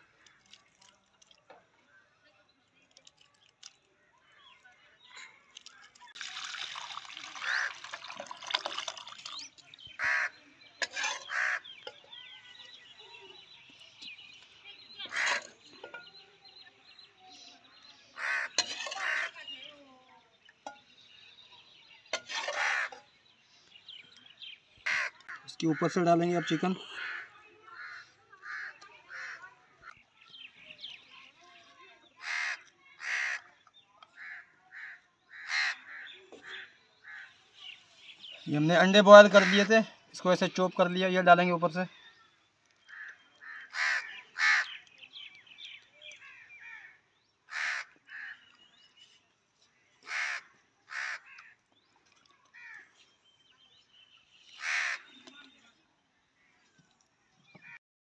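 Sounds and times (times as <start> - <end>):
small birds chirping: 0.0 - 57.8
broth splashing into bowl: 5.6 - 9.7
crows cawing: 7.4 - 8.0, 10.0 - 10.3, 11.2 - 11.7, 15.0 - 15.5, 18.2 - 19.4, 22.6 - 23.0, 24.8 - 25.8, 26.5 - 29.4, 32.2 - 33.5, 34.2 - 37.4, 42.9 - 44.8, 46.3 - 48.4, 50.0 - 51.6, 52.6 - 52.9, 54.6 - 55.2.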